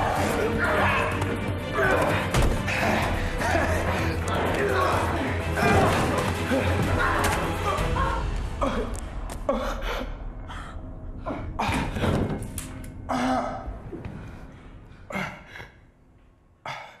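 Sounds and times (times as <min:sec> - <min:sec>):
people gasping and crying out: 0:00.0 - 0:15.8.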